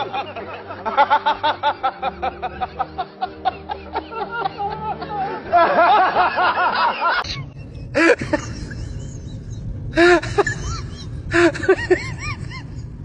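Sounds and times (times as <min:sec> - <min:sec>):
low steady hum: 0:07.2 - 0:13.0.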